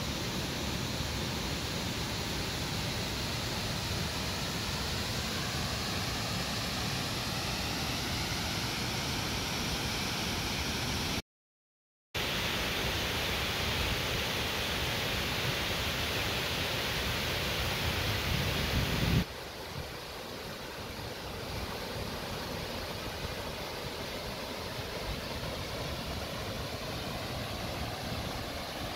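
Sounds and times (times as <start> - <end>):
waterfall rushing into pool: 0.0 - 11.2, 12.2 - 28.9.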